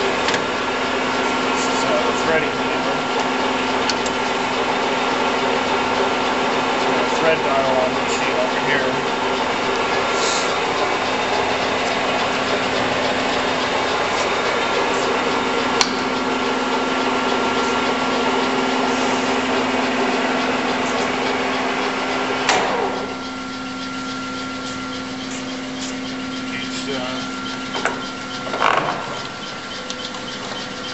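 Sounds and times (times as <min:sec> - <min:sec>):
lathe humming: 0:00.0 - 0:30.9
sharp click: 0:15.8 - 0:16.1.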